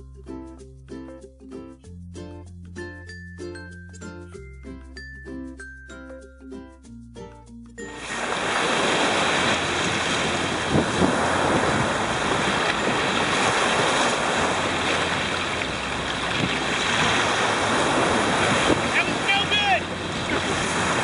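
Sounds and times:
waves washing against shore: 7.9 - 21.0
wind buffeting microphone: 8.2 - 21.0.

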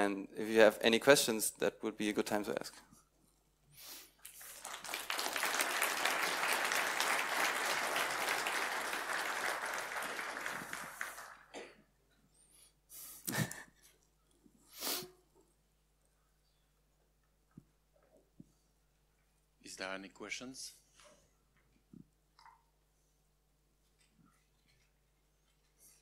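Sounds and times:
audience applause: 4.3 - 11.6.

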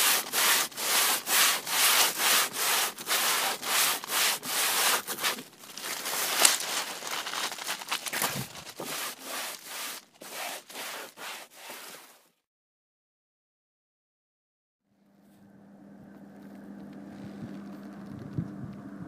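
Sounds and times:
rubbing strokes: 0.0 - 12.4.

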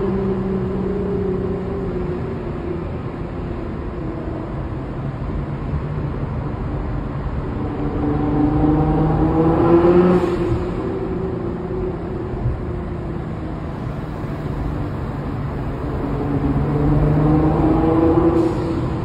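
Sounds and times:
car engine accelerating: 5.8 - 19.0.

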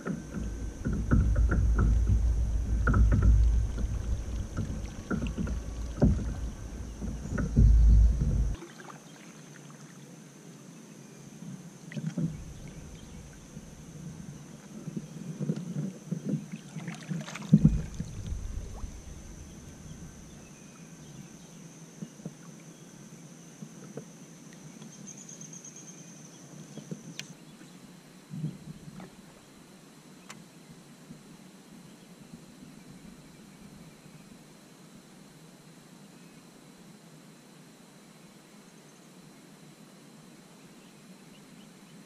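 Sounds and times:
paddle knocking against kayak hull: 0.0 - 8.6, 17.2 - 20.4
faint high whine: 0.0 - 42.0.

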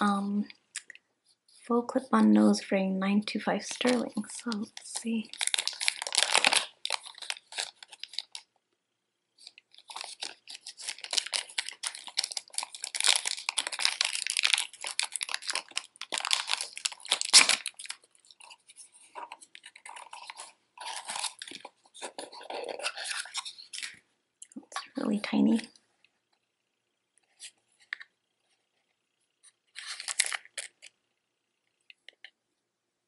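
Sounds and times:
plastic bag crinkling: 3.5 - 8.5, 9.4 - 24.0, 29.7 - 30.9.

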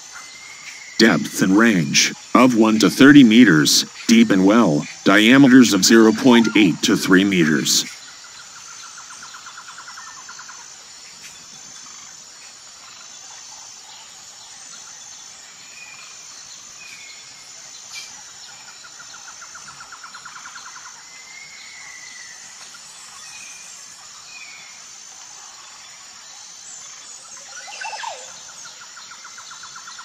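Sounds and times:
rapid bird or insect trills: 0.0 - 1.0, 7.8 - 30.0
high insect drone: 7.2 - 30.0.

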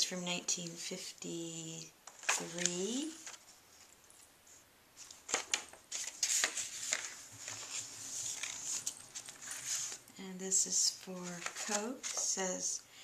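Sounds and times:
paper sheets rustling: 2.1 - 3.9, 4.5 - 10.1, 11.1 - 12.6.

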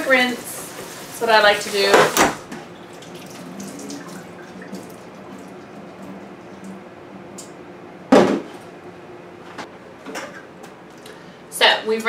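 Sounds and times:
faint steady hum: 0.0 - 12.0
water dripping and trickling: 2.7 - 6.8.

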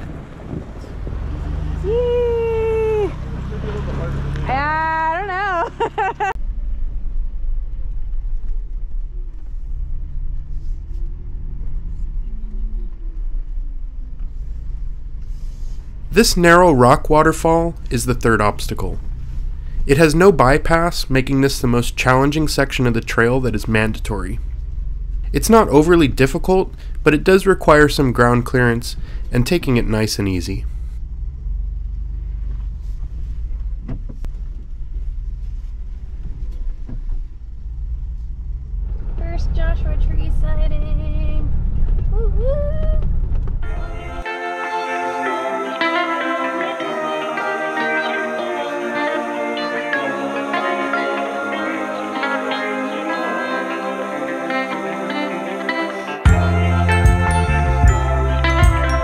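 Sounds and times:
truck engine running at low speed: 0.0 - 44.2.

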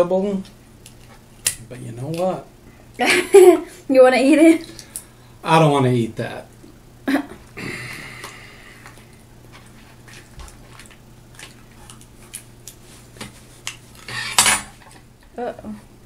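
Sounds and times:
lobster shell cracking: 0.8 - 2.4.

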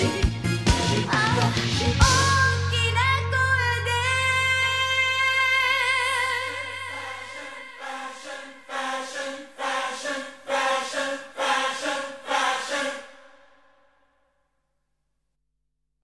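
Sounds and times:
choir-like voices singing chords: 0.0 - 2.8, 5.4 - 13.9.

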